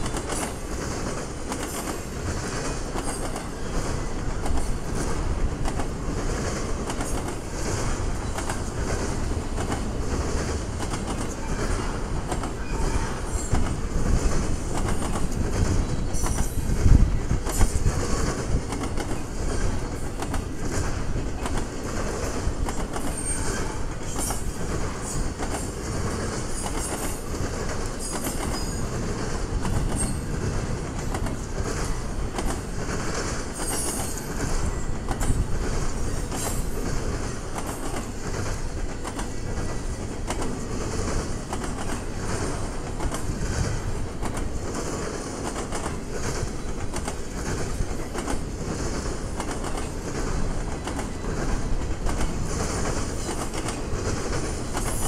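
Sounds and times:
train wheels rumbling on rail: 0.0s - 55.0s
wheels clacking over rail joints: 0.0s - 55.0s
high wheel squeals: 23.0s - 24.4s.

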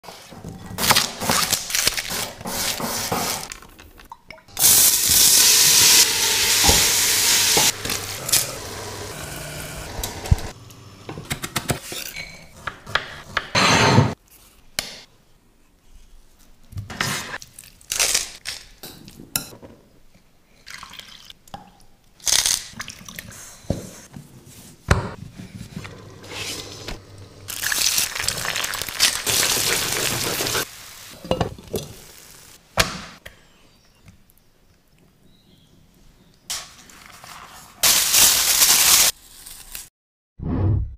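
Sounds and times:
eggs sizzling in frying pan: 4.6s - 10.9s, 26.0s - 32.6s.

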